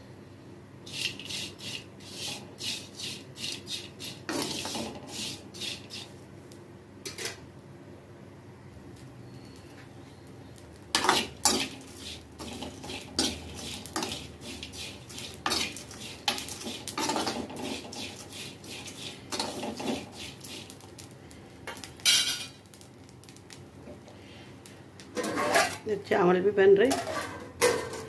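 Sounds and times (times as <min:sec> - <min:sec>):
spatula scraping a pan: 0:00.9 - 0:06.2, 0:10.9 - 0:21.1, 0:25.2 - 0:25.9, 0:26.9 - 0:28.0.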